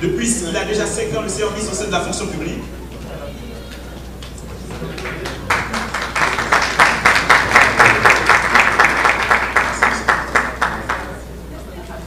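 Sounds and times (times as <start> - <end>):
audience applause: 4.2 - 11.2.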